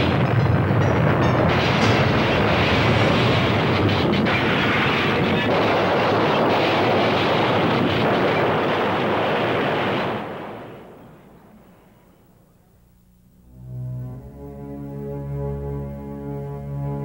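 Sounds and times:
loud rushing wind: 0:00.0 - 0:10.8.

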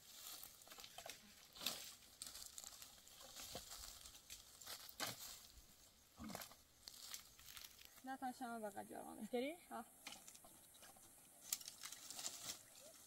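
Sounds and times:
dry branches crackling and rustling: 0:00.0 - 0:05.6, 0:06.2 - 0:08.1, 0:10.0 - 0:13.0
twigs snapping: 0:00.2 - 0:05.4, 0:11.4 - 0:13.0.

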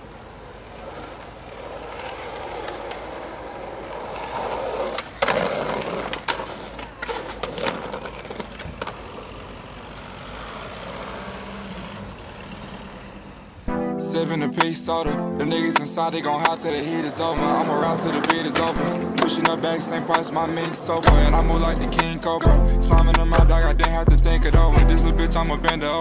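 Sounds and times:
skateboard clacks: 0:00.0 - 0:11.1, 0:15.6 - 0:24.1
skateboard grinding on concrete curb: 0:00.0 - 0:12.7, 0:15.6 - 0:24.2
skateboard wheels rolling on pavement: 0:00.0 - 0:26.0.

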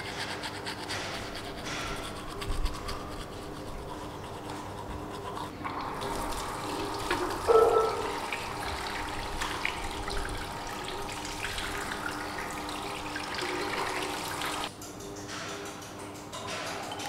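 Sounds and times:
toothbrush scrubbing teeth: 0:00.0 - 0:08.2
water running into sink: 0:05.6 - 0:14.7.

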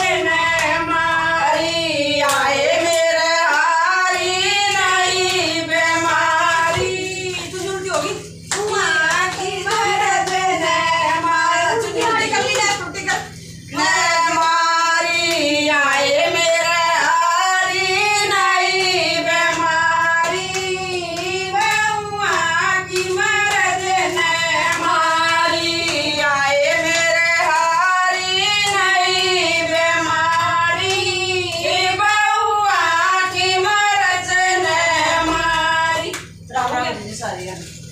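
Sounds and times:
woman singing devotional song: 0:00.0 - 0:37.9
hands clapping: 0:02.2 - 0:16.4, 0:17.4 - 0:32.9, 0:36.1 - 0:37.0.

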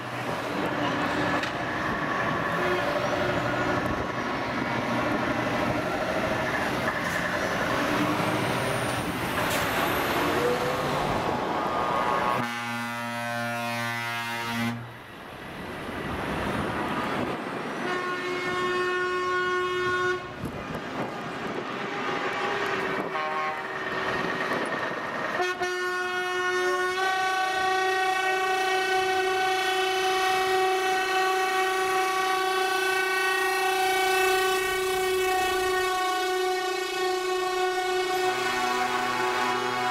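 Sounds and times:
trucks diesel engines running: 0:00.0 - 0:39.9
truck air horn blasts: 0:12.3 - 0:15.0, 0:17.8 - 0:20.4, 0:21.8 - 0:23.9, 0:25.3 - 0:39.9.

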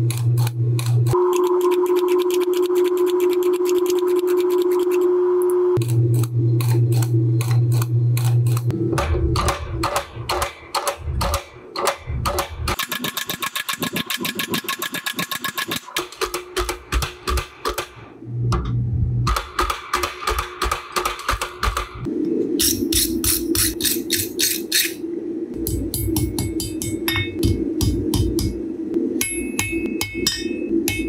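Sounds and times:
hammer blows on hot steel: 0:25.6 - 0:28.6.

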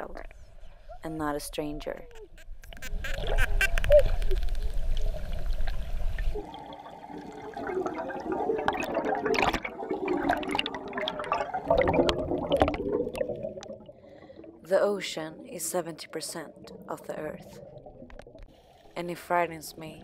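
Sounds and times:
low underwater rumble: 0:02.6 - 0:14.7, 0:16.4 - 0:18.6
exhaled breath bubbling underwater: 0:03.1 - 0:14.7, 0:16.5 - 0:18.7.

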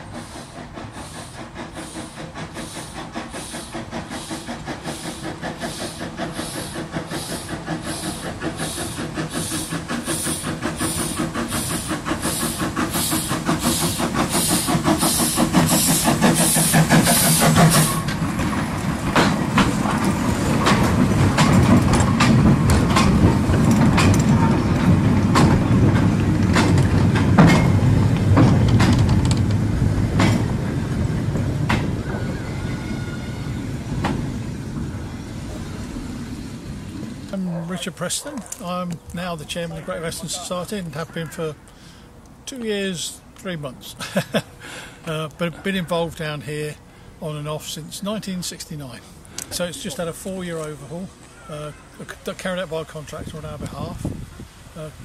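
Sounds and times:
wheels clanking over rail joints: 0:00.0 - 0:43.5
steam locomotive exhaust beats: 0:00.0 - 0:51.4
wagons rumbling past: 0:02.4 - 0:41.6.

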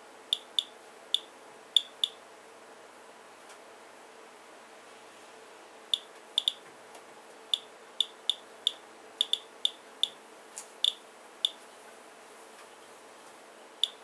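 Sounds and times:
faint steady hum: 0:00.0 - 0:14.0
geiger counter clicking: 0:00.3 - 0:02.2, 0:06.0 - 0:06.6, 0:07.5 - 0:10.2, 0:10.8 - 0:11.6.

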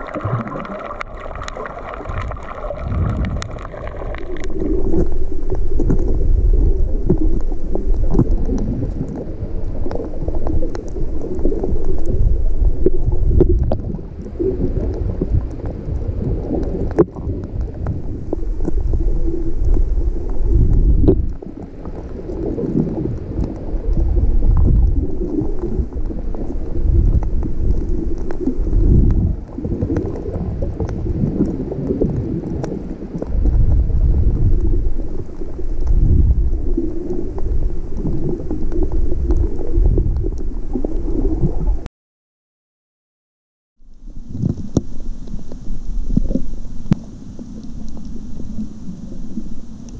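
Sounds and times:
underwater rumble and sloshing: 0:00.0 - 0:41.9, 0:43.8 - 0:49.9
faint clicks: 0:07.0 - 0:12.2, 0:12.8 - 0:36.0, 0:44.4 - 0:48.6.

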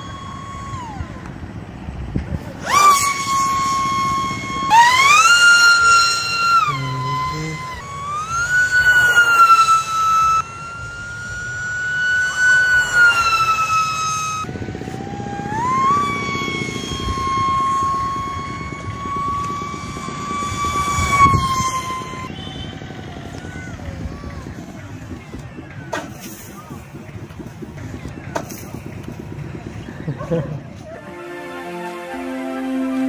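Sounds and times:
electric motor and propeller whining: 0:00.0 - 0:33.0
rough rushing noise: 0:00.0 - 0:33.0.

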